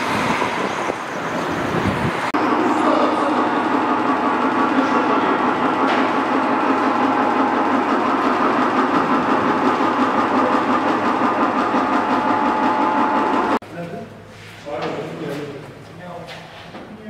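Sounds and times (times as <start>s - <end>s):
car lift motor and pump running: 1.7s - 13.6s.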